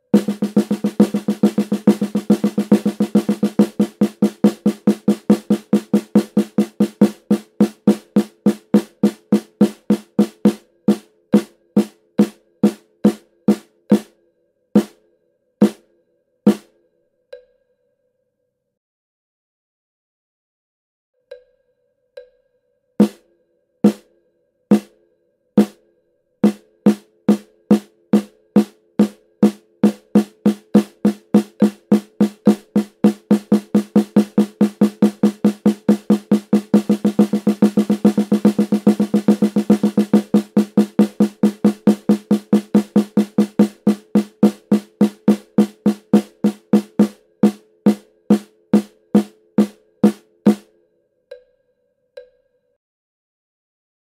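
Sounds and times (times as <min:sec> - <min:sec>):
snare drum strokes: 0:00.0 - 0:14.1, 0:14.8 - 0:15.0, 0:16.5 - 0:16.7, 0:24.7 - 0:24.9, 0:26.4 - 0:50.7.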